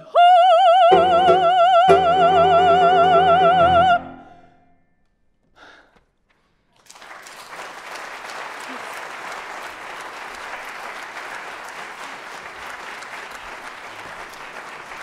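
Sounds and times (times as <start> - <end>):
woman singing opera: 0.0 - 4.3
piano chords: 0.9 - 4.8
applause: 6.7 - 15.0.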